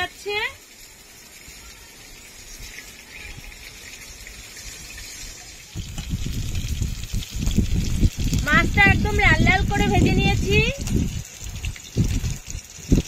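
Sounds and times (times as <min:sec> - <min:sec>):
fish sizzling in hot oil: 0:00.0 - 0:13.0
wind buffeting microphone: 0:05.8 - 0:13.0.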